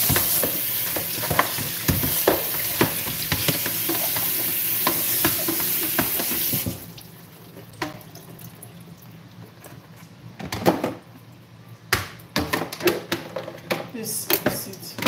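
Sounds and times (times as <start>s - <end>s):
tap water running into sink: 0.0s - 7.0s.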